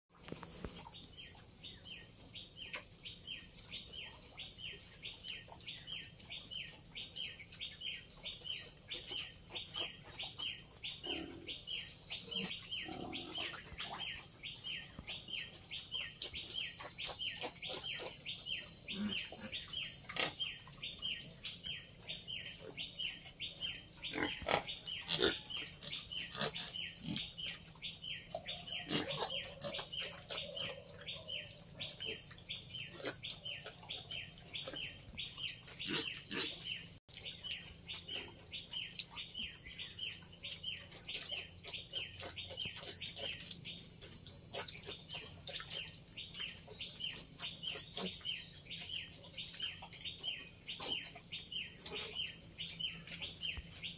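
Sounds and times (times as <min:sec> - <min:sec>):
piglets grunting: 0:11.0 - 0:14.2, 0:18.8 - 0:20.5, 0:24.0 - 0:27.5, 0:28.4 - 0:31.2, 0:35.6 - 0:37.0.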